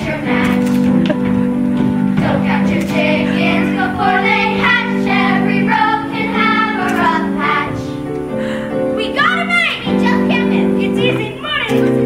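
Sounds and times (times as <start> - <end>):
instrumental accompaniment: 0.0 - 12.0
children singing: 2.2 - 8.0.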